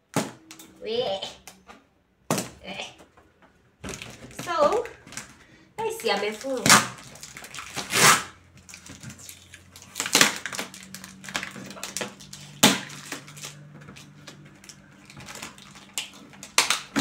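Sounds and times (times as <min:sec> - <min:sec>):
cardboard crackling: 0:03.8 - 0:17.0
packing tape tearing: 0:03.8 - 0:17.0.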